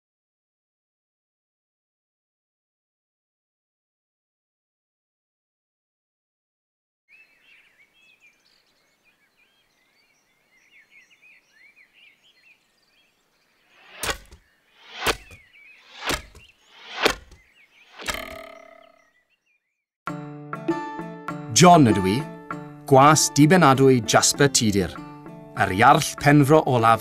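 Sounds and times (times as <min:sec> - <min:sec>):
birds chirping: 0:07.1 - 0:19.8
arrows whooshing: 0:13.7 - 0:18.8
arrows thudding into target: 0:13.8 - 0:18.9.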